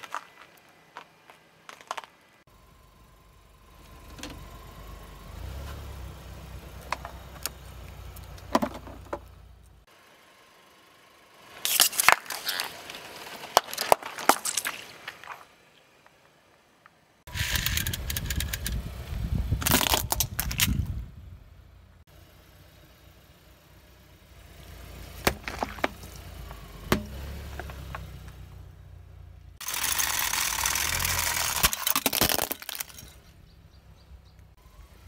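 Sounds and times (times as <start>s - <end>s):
car rolling rumble: 0.0s - 35.0s
plastic cracking and crunching: 19.6s - 20.8s, 29.6s - 33.1s
plastic toy breaking: 19.6s - 20.8s, 29.6s - 33.2s.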